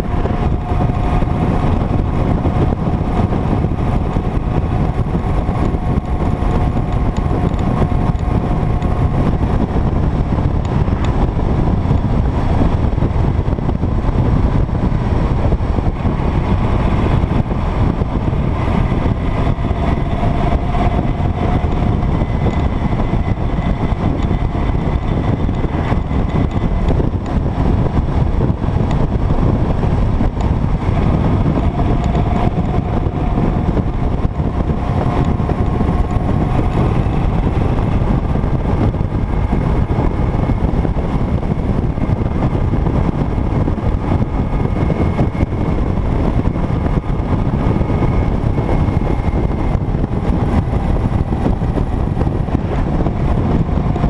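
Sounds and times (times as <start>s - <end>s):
motorcycle engine drone: 0.0s - 54.0s
wind rush on microphone: 0.0s - 54.0s.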